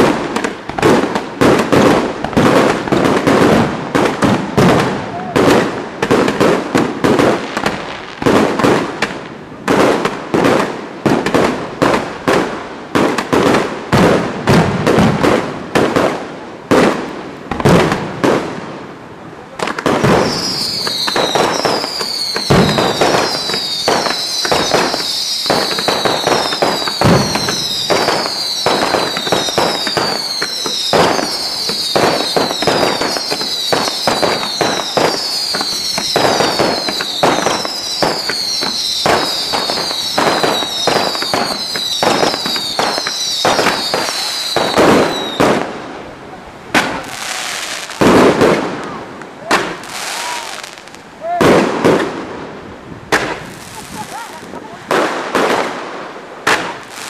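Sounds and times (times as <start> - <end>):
fireworks bursting and crackling: 0.0 - 57.0
fireworks falling whistles: 19.8 - 45.7, 46.8 - 52.2.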